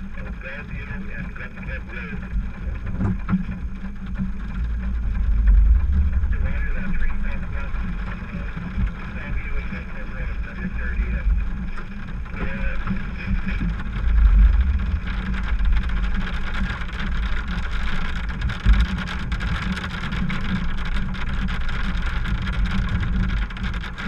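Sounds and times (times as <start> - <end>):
heavy low thumps: 0.0 - 19.5
engine and road rumble: 0.0 - 24.0
raindrops tapping on windshield: 0.0 - 24.0.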